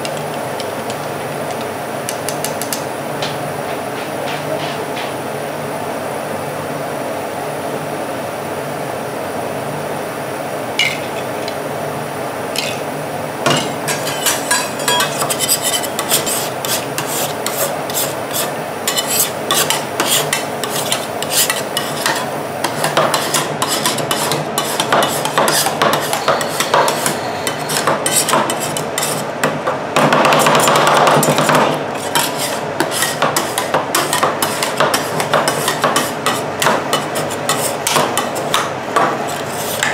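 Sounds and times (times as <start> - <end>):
spatulas tapping on steel plate: 13.5 - 17.6.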